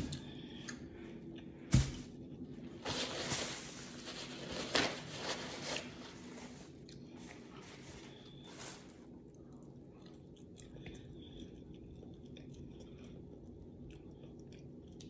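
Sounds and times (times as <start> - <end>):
paper towel rustling: 1.7 - 9.1.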